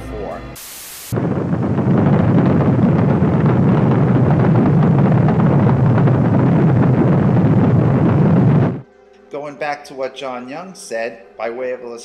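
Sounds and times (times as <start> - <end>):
rocket engines crackling rumble: 0.9 - 8.8.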